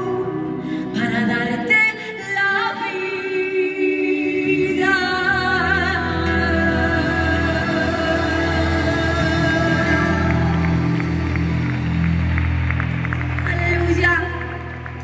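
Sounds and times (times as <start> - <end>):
woman singing into microphone: 0.0 - 10.9, 13.4 - 15.0
backing music: 4.2 - 15.0.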